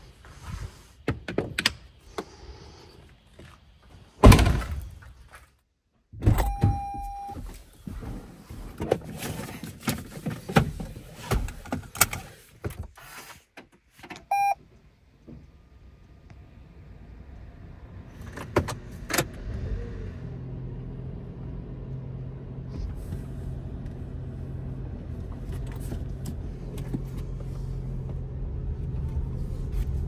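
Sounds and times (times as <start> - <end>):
short beep: 6.4 - 7.4, 14.3 - 14.6.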